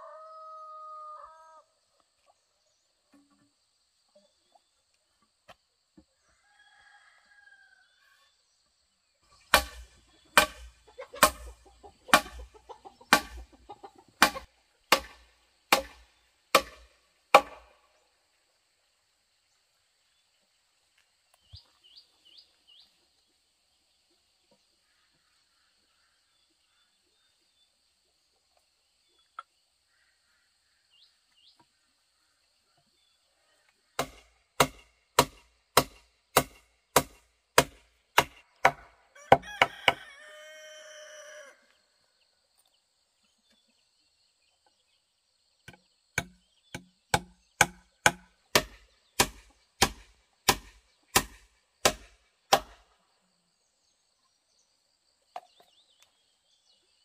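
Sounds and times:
rooster crowing: 0:00.0 - 0:01.7, 0:06.3 - 0:08.0, 0:39.1 - 0:41.7
steady chopping blows: 0:09.5 - 0:12.5, 0:13.1 - 0:13.6, 0:14.2 - 0:17.7, 0:34.0 - 0:38.9, 0:46.2 - 0:52.8.

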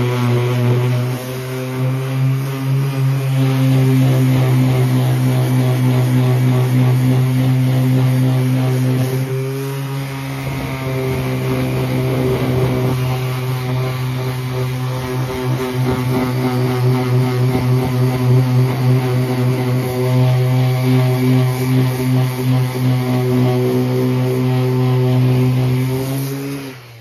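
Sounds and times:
power sander running: 0:00.0 - 0:27.0
rough scraping: 0:07.9 - 0:19.9.

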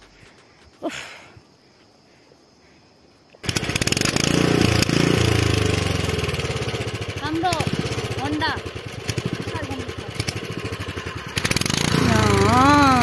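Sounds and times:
small petrol engine running: 0:03.4 - 0:13.0.

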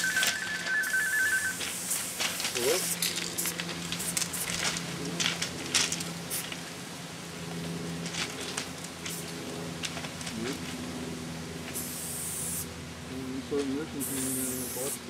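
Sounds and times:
spray-paint can hissing: 0:00.0 - 0:04.7, 0:11.7 - 0:12.7, 0:14.0 - 0:15.0
steady low hum: 0:00.0 - 0:15.0.

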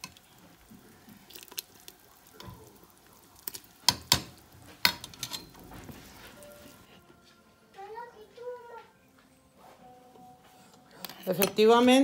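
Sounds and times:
metal spoon clinking in pot: 0:03.9 - 0:05.6.

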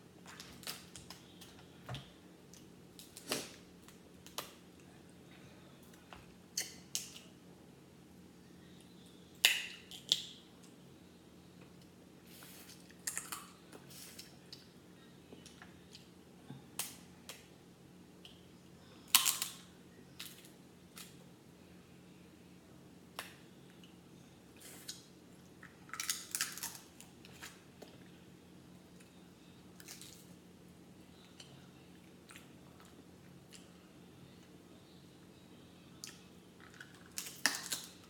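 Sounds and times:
crab shells cracking: 0:19.1 - 0:19.6, 0:25.9 - 0:27.0, 0:36.6 - 0:38.0.

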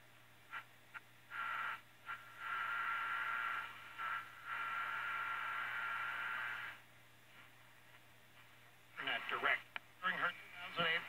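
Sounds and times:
radio whistle: 0:01.3 - 0:06.8
radio static: 0:09.0 - 0:11.0.

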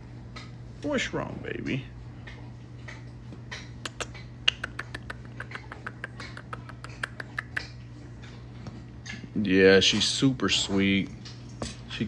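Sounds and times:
soft kissing smacks: 0:03.8 - 0:07.7.

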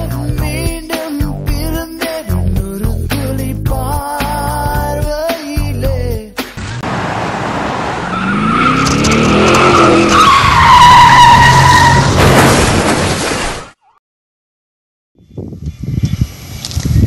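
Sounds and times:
car engine revving: 0:06.6 - 0:11.8
tyres screeching: 0:08.0 - 0:12.2.

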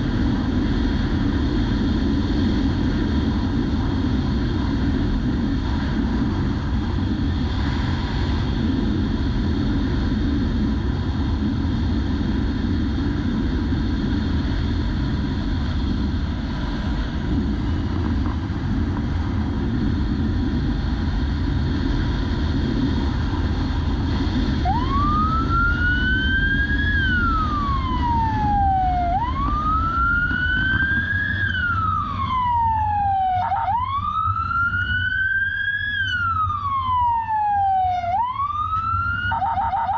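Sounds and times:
motorcycle engine at speed: 0:00.0 - 0:37.2
wind rush: 0:00.0 - 0:39.4
police siren wailing: 0:24.6 - 0:39.9.

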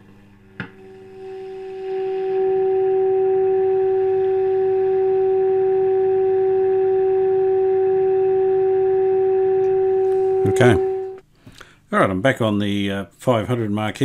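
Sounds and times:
steady test tone: 0:00.8 - 0:11.2.

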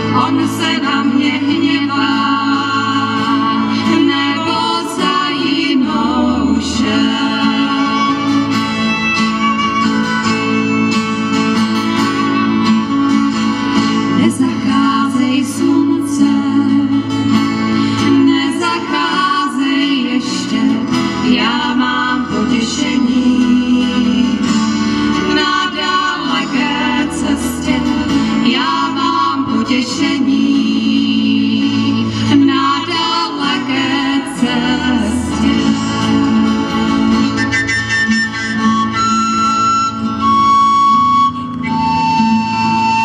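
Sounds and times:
women singing: 0:00.0 - 0:08.7, 0:14.0 - 0:37.4
double bass: 0:00.0 - 0:43.0
strummed acoustic guitars: 0:00.0 - 0:43.0
violin: 0:00.0 - 0:43.0.

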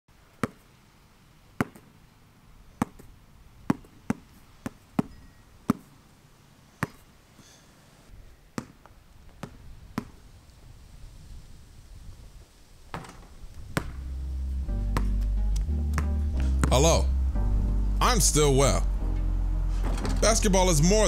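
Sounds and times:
basketball bouncing on concrete: 0:00.4 - 0:00.6, 0:01.6 - 0:01.9, 0:02.8 - 0:03.1, 0:03.7 - 0:05.9, 0:06.8 - 0:07.0, 0:08.6 - 0:10.2, 0:12.9 - 0:14.1, 0:14.9 - 0:15.2, 0:16.0 - 0:16.8.

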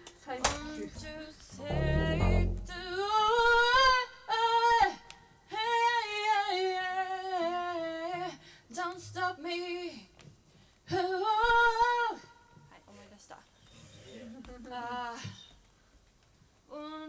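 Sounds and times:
woman singing into microphone: 0:00.0 - 0:10.1, 0:10.9 - 0:12.6, 0:14.2 - 0:15.6
low rumble: 0:01.0 - 0:03.1.

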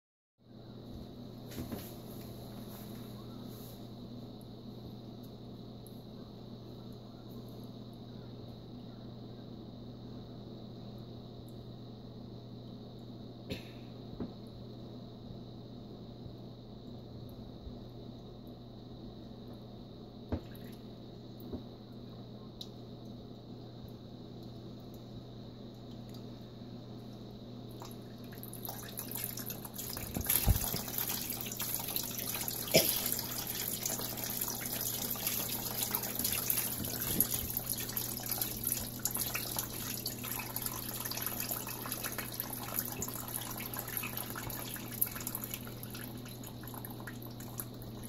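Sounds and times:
steady low hum: 0:00.4 - 0:48.0
water splashing and dripping: 0:27.7 - 0:48.0.

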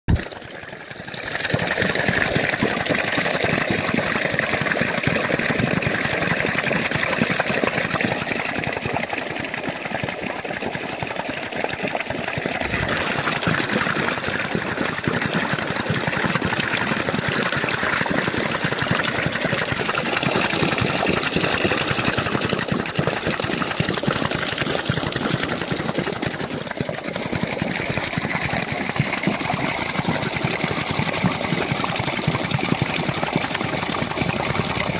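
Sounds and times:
water pouring and splashing: 0:00.1 - 0:34.9
water wheel paddles slapping: 0:00.1 - 0:34.9.

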